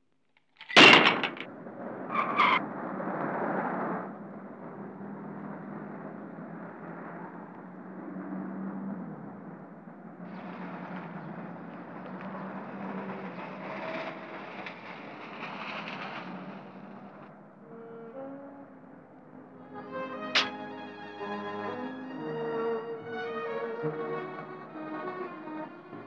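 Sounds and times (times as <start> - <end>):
scooter crashing over: 0.6 - 1.5
engine-like rumble: 1.0 - 26.0
horn blast: 17.6 - 26.0.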